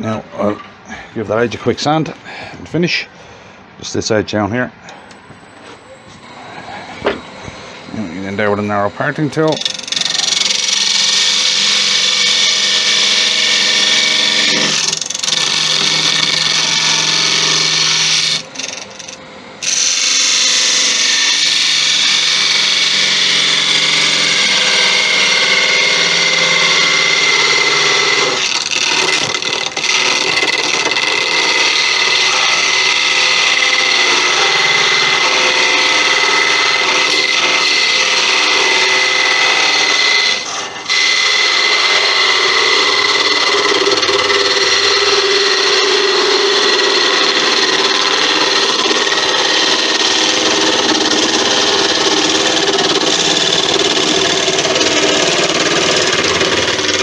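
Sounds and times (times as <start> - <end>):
lathe hum: 4.8 - 57.0
steady high-pitched tone: 5.4 - 10.0.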